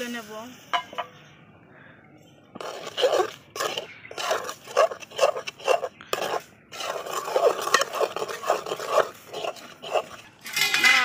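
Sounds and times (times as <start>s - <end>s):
metal ladle scraping metal pan: 2.6s - 11.0s.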